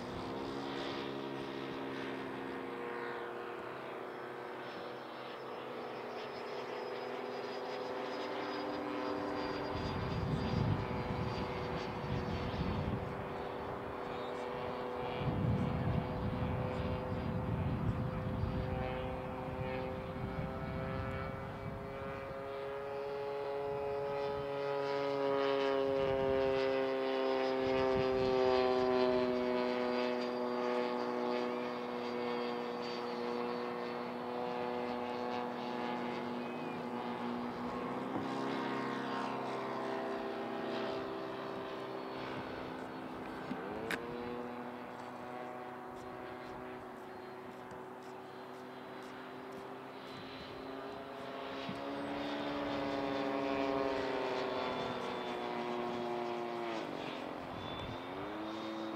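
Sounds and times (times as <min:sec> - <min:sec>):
model jet whining in flight: 0:00.0 - 0:58.9.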